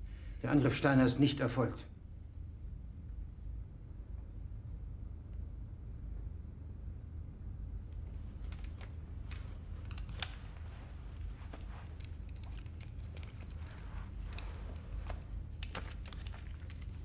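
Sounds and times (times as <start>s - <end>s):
low room rumble: 0.0s - 17.0s
faint clicks and rustles: 4.1s - 17.0s.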